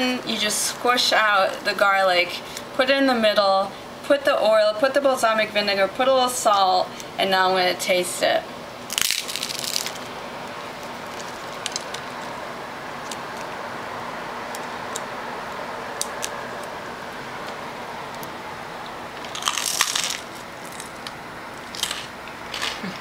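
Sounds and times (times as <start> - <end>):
crusty bread bitten: 8.9 - 12.3, 19.2 - 22.9.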